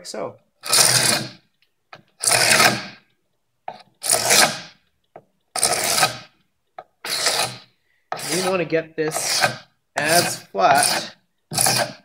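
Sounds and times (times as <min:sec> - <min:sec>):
scraper scraping wooden board: 0:00.6 - 0:03.0, 0:03.7 - 0:04.8, 0:05.6 - 0:06.4, 0:07.0 - 0:12.0.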